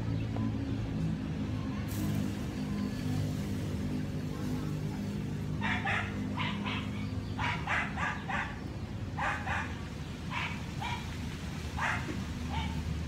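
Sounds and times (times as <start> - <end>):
animal barking: 5.6 - 11.1, 11.8 - 12.9.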